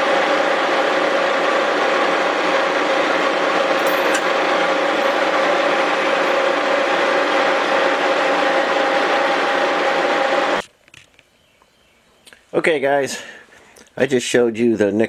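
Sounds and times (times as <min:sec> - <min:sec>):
spinning cutter hum: 0:00.0 - 0:10.6
milling machine cutting metal: 0:01.0 - 0:10.6.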